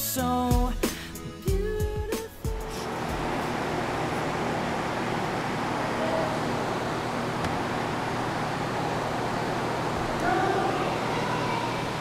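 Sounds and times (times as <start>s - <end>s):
distant murmuring voices: 2.9s - 12.0s.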